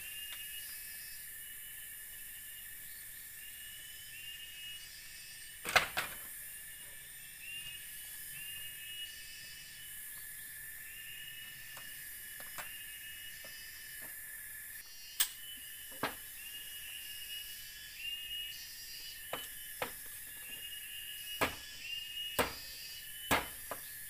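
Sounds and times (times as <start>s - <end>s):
insects chorus: 0.0s - 24.0s
repeating insect chirp: 0.0s - 24.0s
bamboo knocks: 21.4s - 21.7s, 22.4s - 23.9s.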